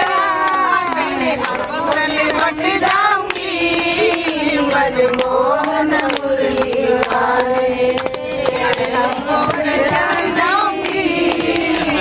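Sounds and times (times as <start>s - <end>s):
hand claps: 0.0s - 12.0s
women chanting in unison: 0.0s - 12.0s.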